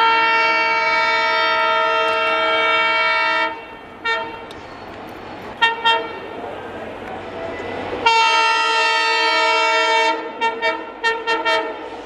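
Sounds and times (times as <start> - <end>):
locomotive air horn: 0.0 - 4.5, 5.6 - 6.3, 8.0 - 12.0
train running noise: 0.0 - 12.0.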